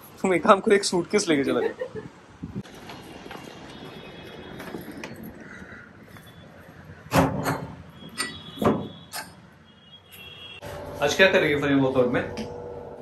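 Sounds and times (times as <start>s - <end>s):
knocks and thumps: 8.6s - 9.0s.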